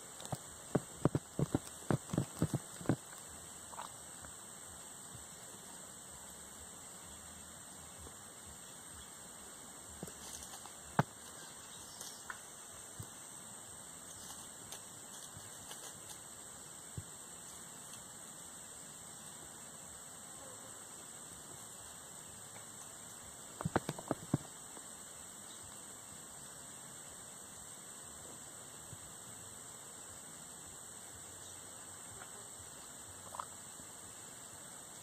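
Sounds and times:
insects droning: 0:00.0 - 0:35.0
sharp clicks and crackles: 0:23.6 - 0:24.5.

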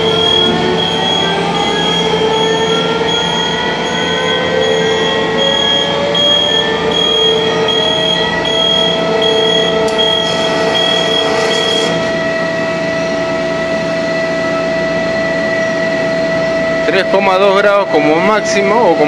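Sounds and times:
high pulsing tone: 0:00.0 - 0:19.0
machine hum and whine: 0:00.0 - 0:19.0.

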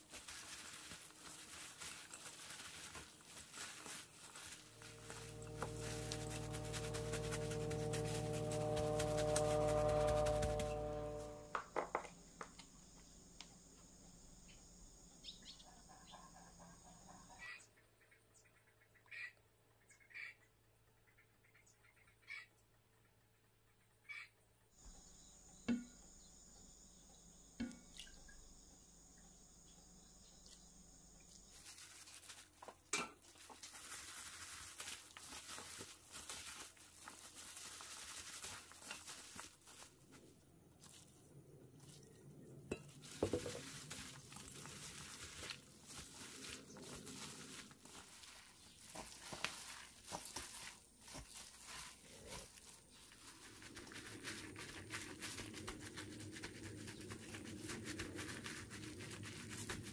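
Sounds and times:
wet stems squishing: 0:00.0 - 0:11.3, 0:31.5 - 0:41.2, 0:41.8 - 0:59.9
plastic glove crinkling: 0:00.0 - 0:11.4, 0:31.5 - 0:59.9.

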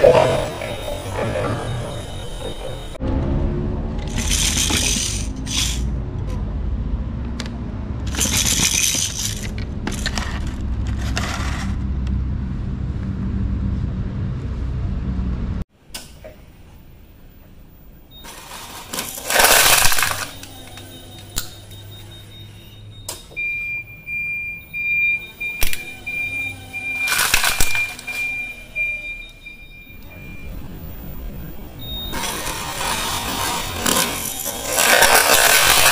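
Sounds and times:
steady high tone: 0:00.0 - 0:05.7, 0:18.1 - 0:23.1, 0:23.8 - 0:35.9
forklift idling: 0:00.0 - 0:06.2, 0:18.1 - 0:35.9
plastic toys crushed crunching: 0:04.1 - 0:05.8, 0:08.1 - 0:11.7, 0:18.3 - 0:20.8, 0:25.6 - 0:28.5, 0:32.2 - 0:35.9
plastic packaging crinkling: 0:27.0 - 0:28.1, 0:33.9 - 0:35.9.

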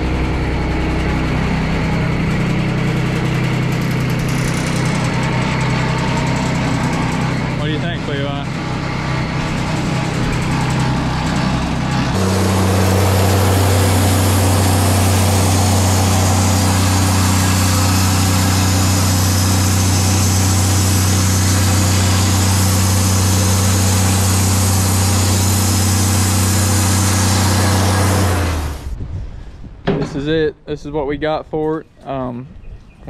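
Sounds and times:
sawmill engine hum: 0:00.0 - 0:32.3
bandsaw sawing wood hiss: 0:12.2 - 0:28.8.

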